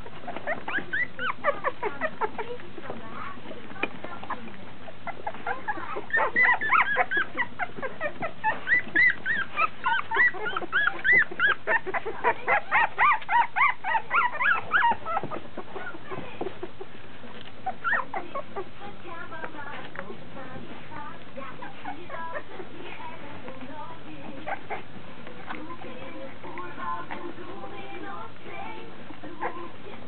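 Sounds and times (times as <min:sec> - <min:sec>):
puppies squealing and whimpering: 0:00.0 - 0:19.0, 0:21.2 - 0:23.3, 0:24.1 - 0:30.0.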